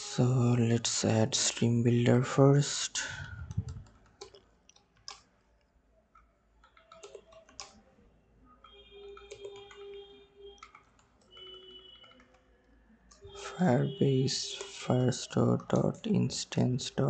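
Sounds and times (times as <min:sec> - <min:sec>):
keyboard typing: 0:03.5 - 0:05.3, 0:06.1 - 0:07.9, 0:08.6 - 0:12.4.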